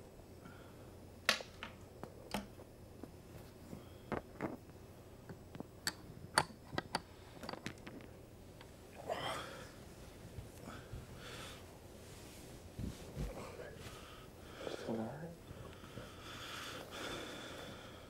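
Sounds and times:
breathy rustle: 9.0s - 18.0s.

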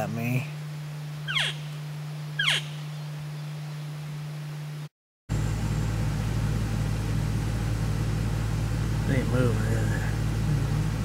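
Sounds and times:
low hum with faint hiss: 0.0s - 11.0s
steady low rumble: 5.3s - 11.0s.

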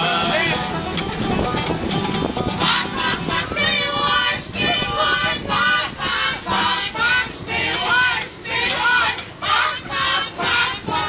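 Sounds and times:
live country band music: 0.0s - 5.7s
people singing: 2.5s - 11.0s.

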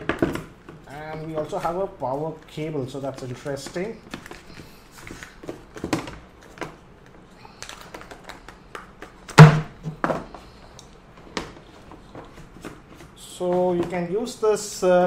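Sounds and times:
box thunk: 9.3s - 10.3s.

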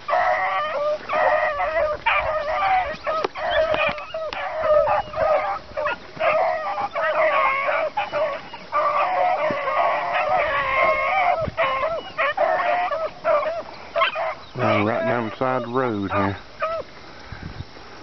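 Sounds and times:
hounds baying: 0.0s - 17.0s.

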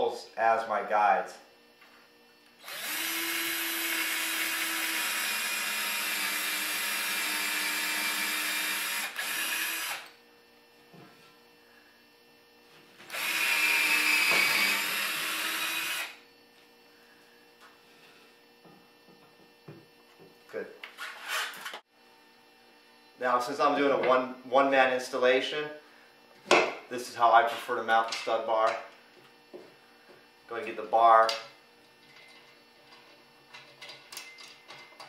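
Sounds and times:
cordless drill boring into wood: 2.6s - 10.1s, 13.1s - 16.2s.

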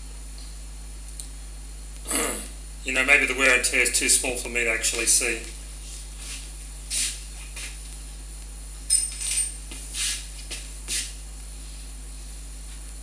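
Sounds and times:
steady low hum: 0.0s - 13.0s
small metal parts clinking: 8.9s - 9.6s.

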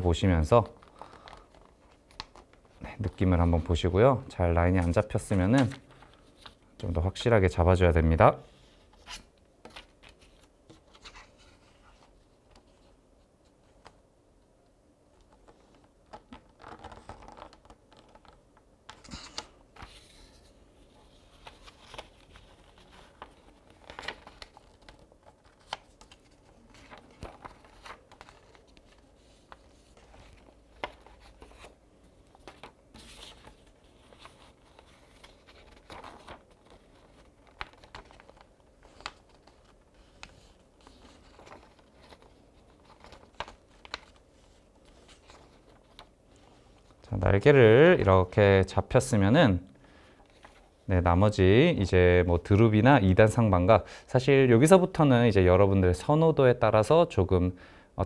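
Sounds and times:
paper rustling and creasing: 0.4s - 3.8s, 15.2s - 48.0s, 50.2s - 50.9s.

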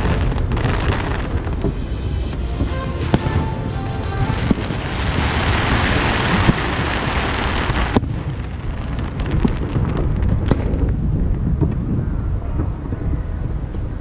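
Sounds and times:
fireworks rushing noise: 0.0s - 14.0s
low rumbling booms: 0.0s - 14.0s.

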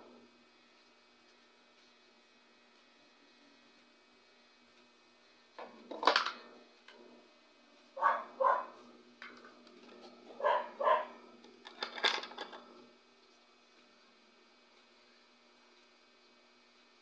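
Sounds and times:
dog barking: 8.0s - 8.8s, 10.4s - 11.2s.

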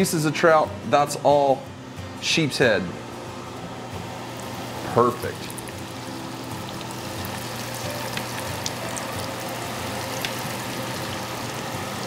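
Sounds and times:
fish frying in hot oil: 5.2s - 12.0s
oil popping and crackling: 6.6s - 11.6s.

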